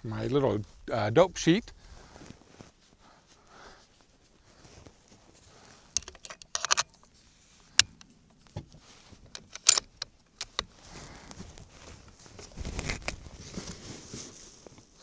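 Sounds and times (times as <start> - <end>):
rifle bolt clicks and clacks: 5.9 - 7.1, 9.3 - 10.7.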